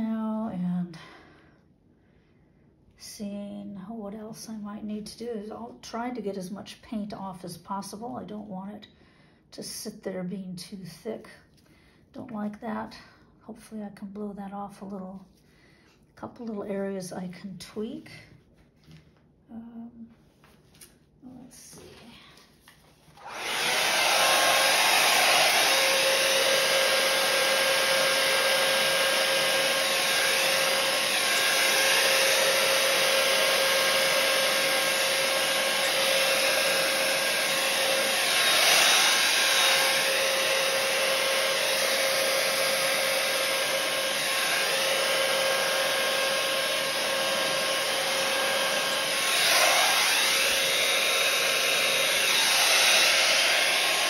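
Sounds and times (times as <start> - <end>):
hair dryer blowing: 23.1 - 54.0.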